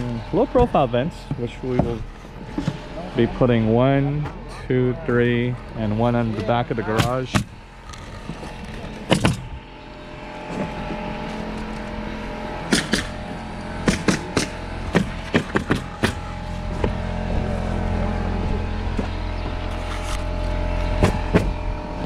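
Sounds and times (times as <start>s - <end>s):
low rumble: 0.0s - 22.0s
nail gun firing: 12.7s - 13.1s, 13.8s - 16.2s.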